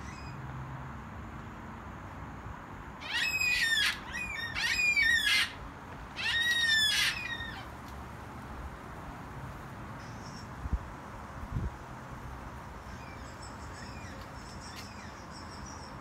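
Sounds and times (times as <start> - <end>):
cockatoo calling: 3.0 - 7.7.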